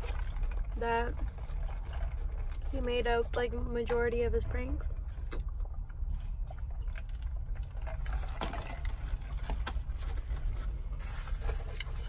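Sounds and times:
small clicks and rustles: 0:00.0 - 0:04.1
car cabin rumble: 0:00.0 - 0:12.0
eating and sipping noises: 0:00.0 - 0:12.0.

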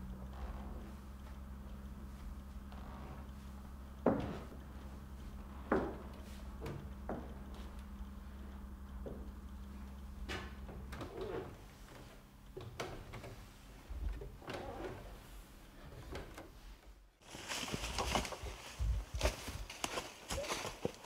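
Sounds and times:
faint knocks and rustles: 0:00.1 - 0:21.0
footsteps through forest undergrowth: 0:17.2 - 0:21.0.

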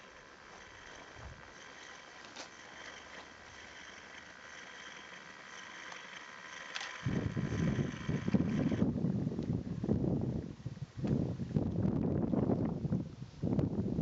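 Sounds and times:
wind buffeting microphone: 0:07.0 - 0:14.0.

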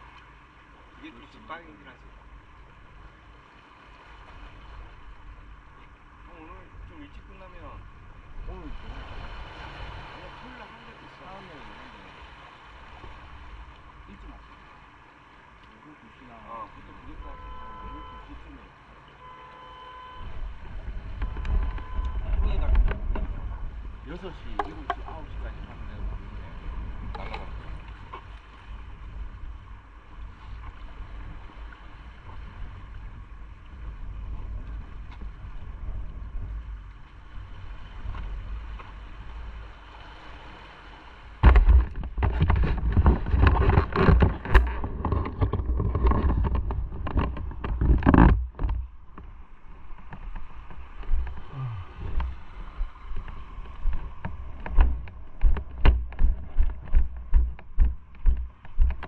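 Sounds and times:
wind buffeting microphone: 0:20.2 - 0:59.0
low thumps: 0:41.4 - 0:49.4, 0:50.0 - 0:59.0.

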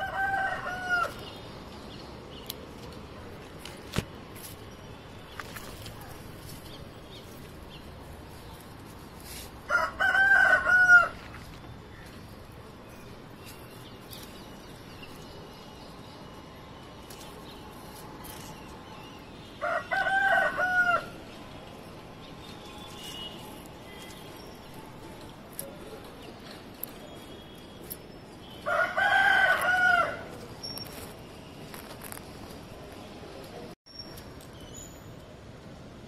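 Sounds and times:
rooster crowing: 0:00.0 - 0:01.2, 0:09.7 - 0:11.2, 0:19.6 - 0:21.2, 0:28.6 - 0:30.2.

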